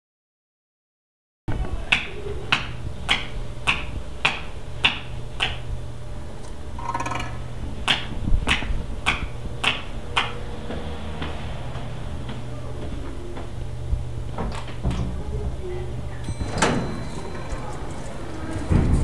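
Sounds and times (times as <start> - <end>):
short metallic jingle: 16.3 - 19.0.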